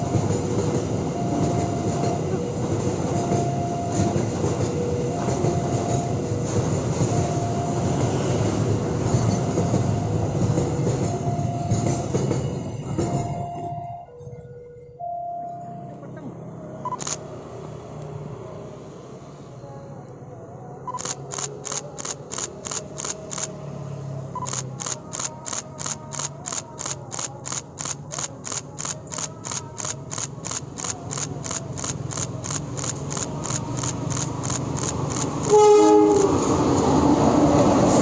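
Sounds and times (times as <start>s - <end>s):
diesel locomotive rumble: 0.0s - 13.6s, 15.5s - 38.0s
locomotive horn: 35.5s - 36.6s.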